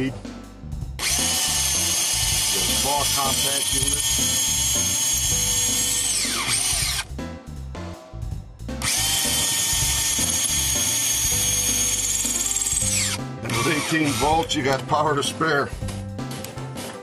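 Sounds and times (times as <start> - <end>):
cordless drill boring into wood: 1.0 - 7.1, 8.8 - 14.6.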